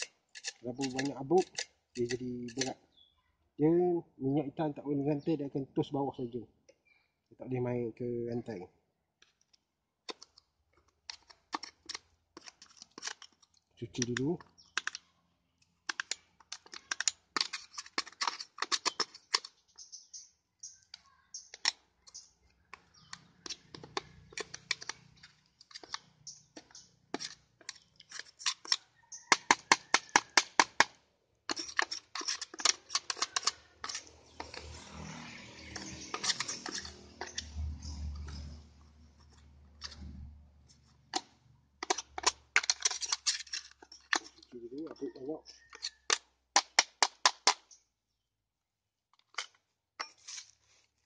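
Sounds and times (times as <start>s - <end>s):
tool scraping sawdust from chainsaw: 31.5s - 38.6s.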